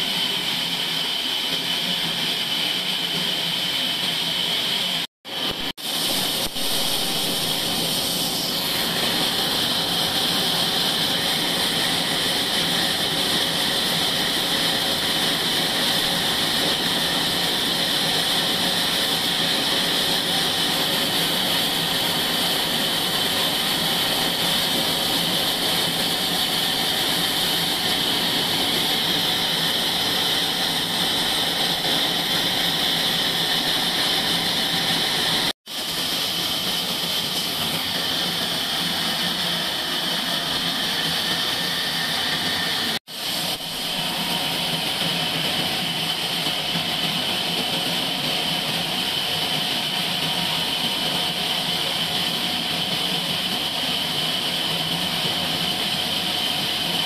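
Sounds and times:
band saw cutting log: 0:06.4 - 0:48.8.

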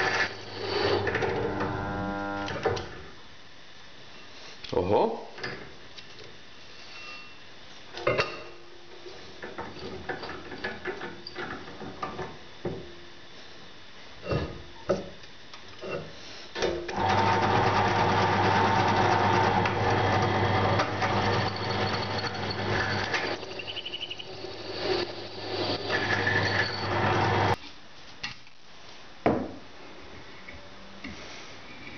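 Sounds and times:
drill press motor humming: 0:00.0 - 0:02.7, 0:16.9 - 0:27.6.

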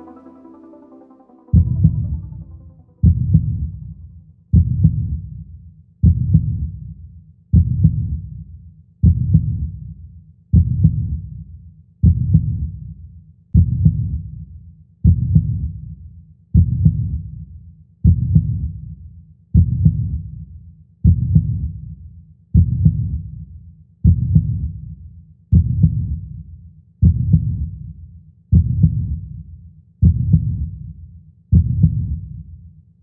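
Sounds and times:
heartbeat double thumps: 0:03.0 - 0:03.8, 0:04.6 - 0:05.3, 0:06.0 - 0:06.8, 0:07.6 - 0:08.2, 0:09.0 - 0:09.8, 0:10.6 - 0:11.3, 0:12.0 - 0:12.8, 0:13.6 - 0:14.3, 0:15.0 - 0:15.8, 0:16.6 - 0:17.3, 0:18.0 - 0:18.8, 0:19.6 - 0:20.4, 0:21.0 - 0:21.8, 0:22.6 - 0:23.4, 0:24.0 - 0:24.9, 0:25.5 - 0:26.3, 0:27.0 - 0:27.8, 0:28.5 - 0:29.3, 0:30.0 - 0:30.8, 0:31.5 - 0:32.3.

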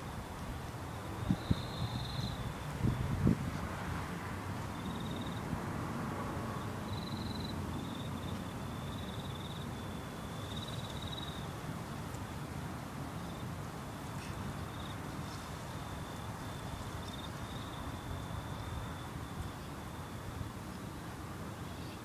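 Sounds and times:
insects chirping in trills: 0:00.0 - 0:03.2, 0:04.6 - 0:05.5, 0:06.5 - 0:12.4, 0:13.1 - 0:20.6.

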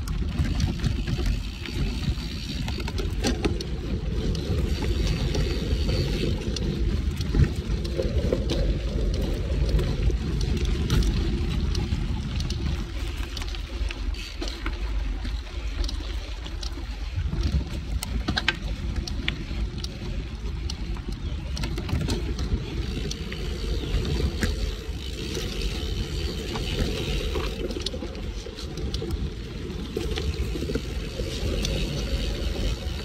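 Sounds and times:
bike clicking and rattling: 0:00.0 - 0:33.0
tyres rumbling on dirt: 0:17.3 - 0:33.0.

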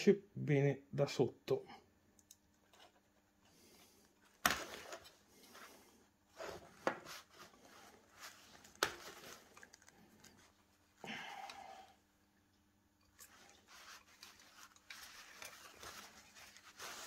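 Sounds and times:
rubbing and rustling: 0:02.6 - 0:11.0, 0:13.0 - 0:17.0.

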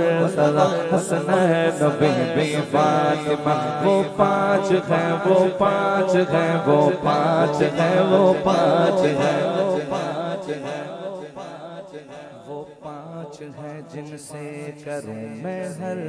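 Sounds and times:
man singing into a microphone: 0:00.0 - 0:16.0.

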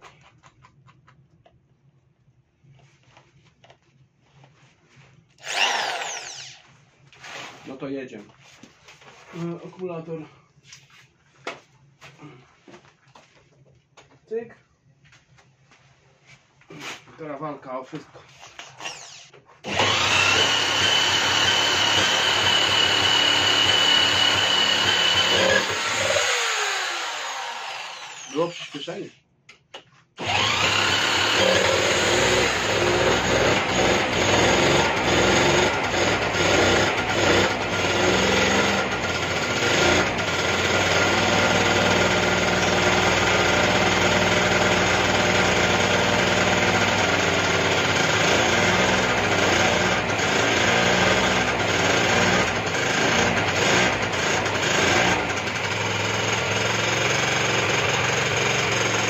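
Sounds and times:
small engine running: 0:05.4 - 0:06.6, 0:18.9 - 0:28.7, 0:30.2 - 0:59.0
electric drill whining: 0:05.4 - 0:06.7, 0:18.6 - 0:28.9, 0:30.2 - 0:59.0.

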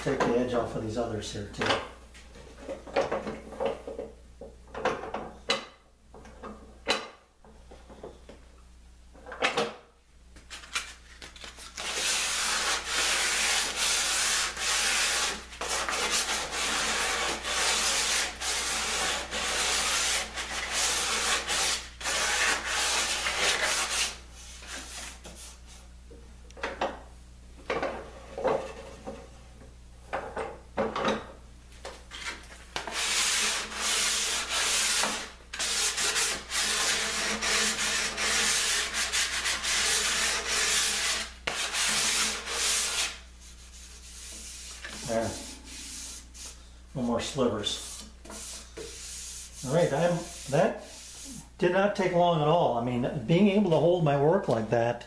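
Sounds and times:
sandpaper rubbing on wood: 0:11.8 - 0:25.6, 0:32.9 - 0:46.6, 0:47.4 - 0:51.5.

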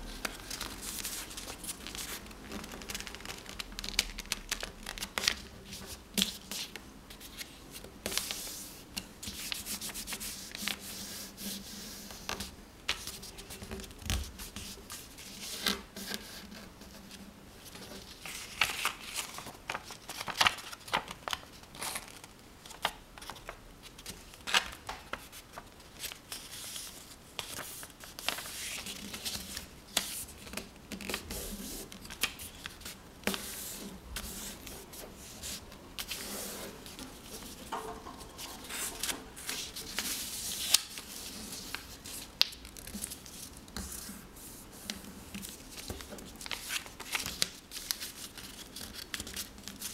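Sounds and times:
paper being folded and creased: 0:00.0 - 0:49.9.

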